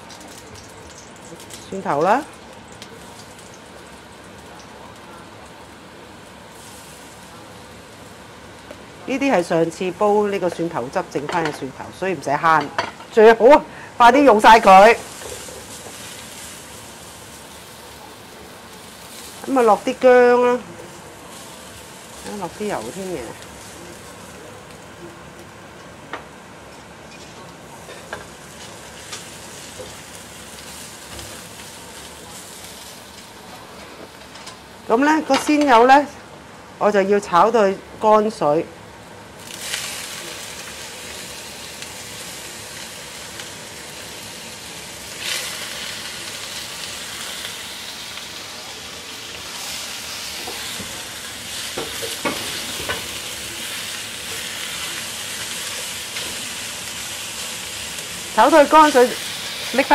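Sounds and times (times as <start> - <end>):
garlic sizzling in hot oil: 0.0 - 59.9
spatula scraping and knocking pan: 51.8 - 53.1.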